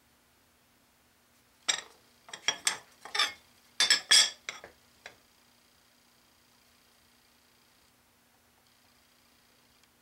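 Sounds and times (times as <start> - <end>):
light metallic clinks and taps: 1.7 - 5.2.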